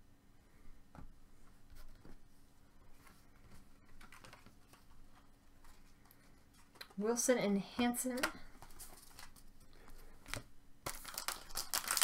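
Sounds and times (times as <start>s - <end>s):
trading cards clicking and rustling: 3.9s - 5.0s, 8.0s - 12.0s.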